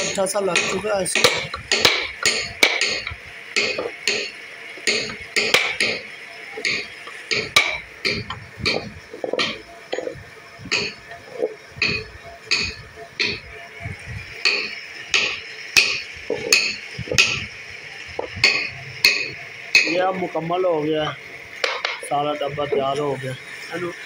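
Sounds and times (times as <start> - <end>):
sharp carving strokes on wood: 0.0 - 11.0.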